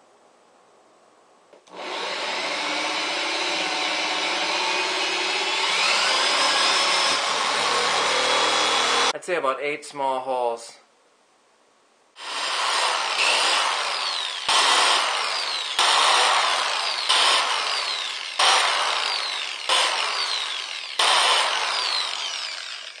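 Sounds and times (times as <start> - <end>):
electric drill boring through rubber: 1.7 - 9.1, 12.2 - 23.0.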